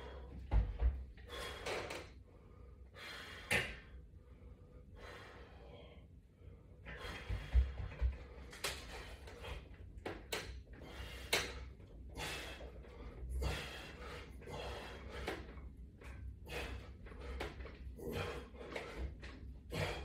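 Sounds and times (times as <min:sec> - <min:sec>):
person exhaling forcefully: 0:19.7 - 0:20.0.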